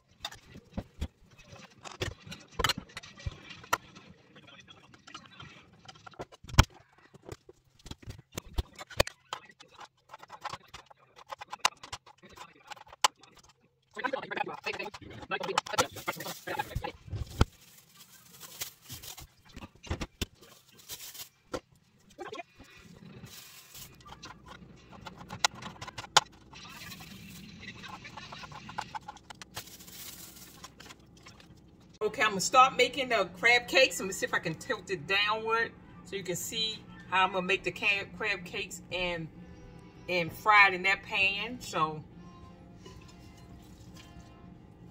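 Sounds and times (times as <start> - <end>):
plastic bag rustling and crinkling: 15.8 - 24.6, 28.5 - 31.2.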